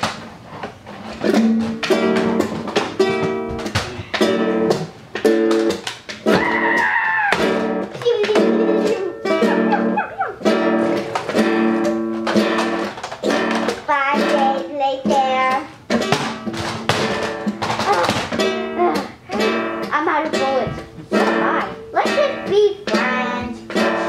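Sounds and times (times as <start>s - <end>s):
child crying out: 6.3s - 8.2s, 9.1s - 10.5s.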